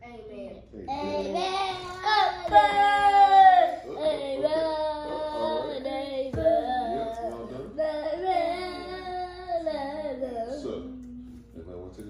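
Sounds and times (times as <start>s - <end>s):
children and woman singing: 1.5s - 10.8s.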